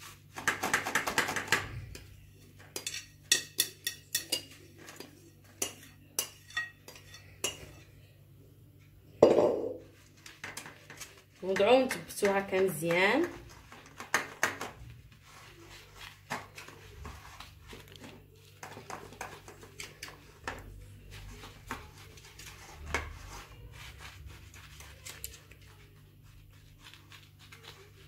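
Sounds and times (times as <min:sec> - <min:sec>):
spoon scraping metal pan: 0:01.9 - 0:07.9.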